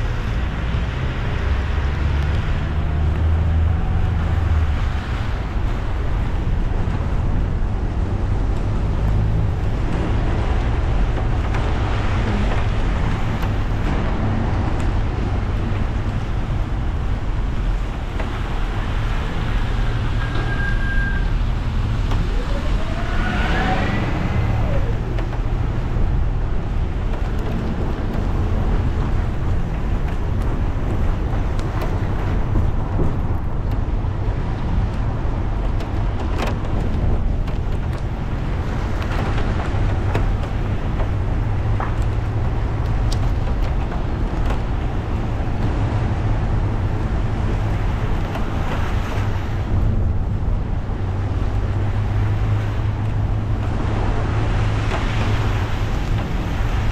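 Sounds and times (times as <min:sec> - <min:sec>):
car engine and road rumble: 0:00.0 - 0:56.9
tyres hissing on wet road: 0:11.7 - 0:25.9
siren wailing: 0:22.1 - 0:25.4.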